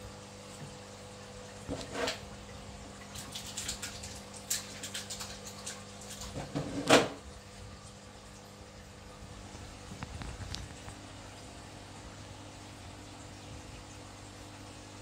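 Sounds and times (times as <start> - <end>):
water splashing and dripping: 0.5 - 11.5.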